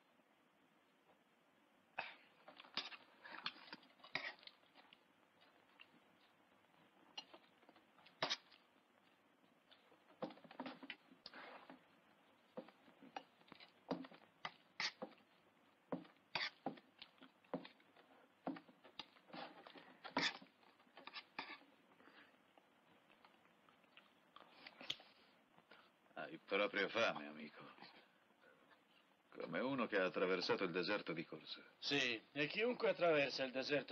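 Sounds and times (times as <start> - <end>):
slurping and chewing: 2.0 - 26.0
spoon scraping a plate: 14.8 - 15.2, 16.4 - 16.6, 20.1 - 21.7.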